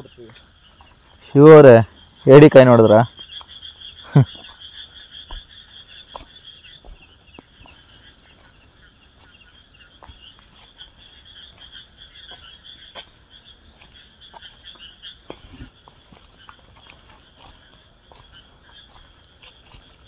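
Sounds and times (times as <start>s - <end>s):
frog chorus trilling: 0.0s - 20.0s.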